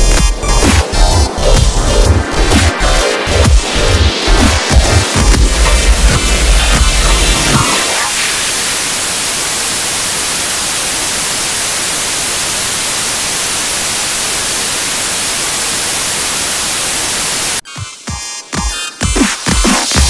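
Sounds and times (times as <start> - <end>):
music with heavy bass hits: 0.0 - 8.5, 17.7 - 20.0
static hiss: 4.6 - 17.6.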